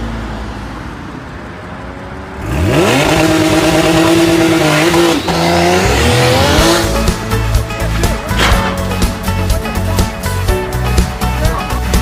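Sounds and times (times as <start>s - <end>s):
car engine revving hard: 2.4s - 7.4s.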